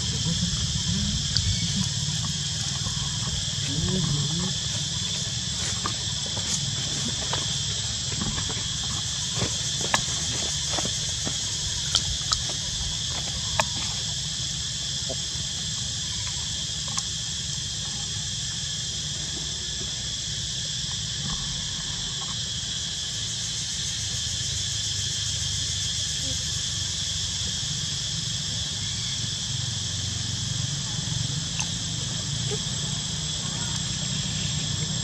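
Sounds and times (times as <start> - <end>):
low steady rumble: 0.0 - 15.1
insects shrilling: 0.0 - 35.0.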